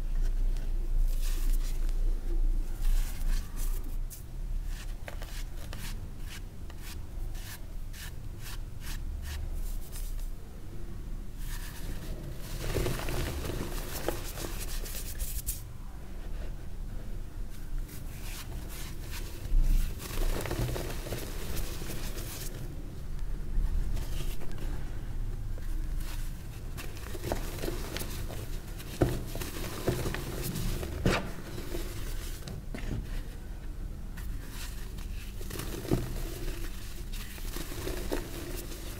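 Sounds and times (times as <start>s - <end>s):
chalk crunching and crumbling: 34.4s - 38.9s.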